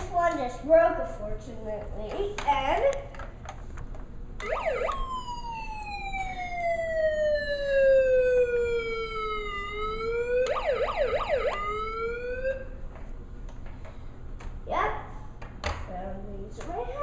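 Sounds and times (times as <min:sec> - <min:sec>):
toy electronic siren: 0:04.4 - 0:12.8.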